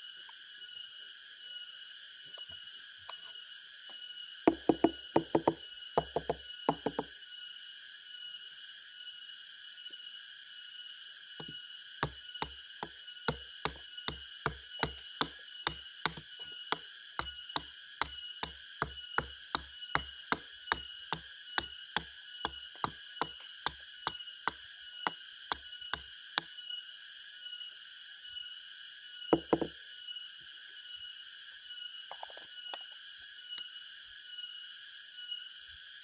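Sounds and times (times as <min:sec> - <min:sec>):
machete striking palm stalk: 0:11.4 - 0:26.5.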